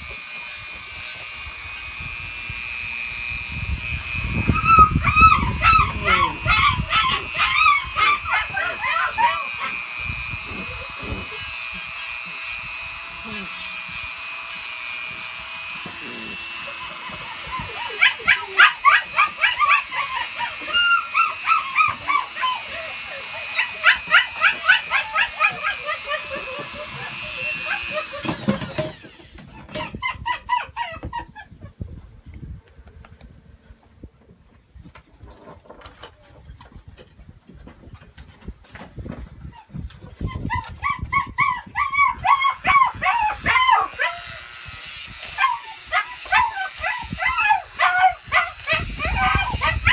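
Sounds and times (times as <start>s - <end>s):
rotary nail grinder whine: 0.0s - 31.2s, 38.6s - 49.9s
puppy whining and yelping: 4.4s - 9.8s, 16.0s - 31.9s, 38.2s - 44.5s, 45.2s - 49.9s.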